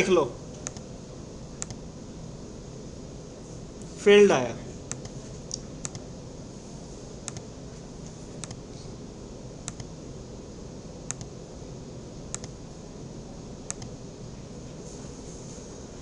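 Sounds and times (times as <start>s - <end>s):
low room hum: 0.0s - 16.0s
computer mouse clicking: 0.5s - 0.9s, 1.6s - 1.8s, 4.9s - 6.1s, 7.2s - 7.5s, 8.4s - 8.6s, 9.6s - 9.9s, 11.1s - 11.3s, 12.3s - 12.6s, 13.7s - 14.0s.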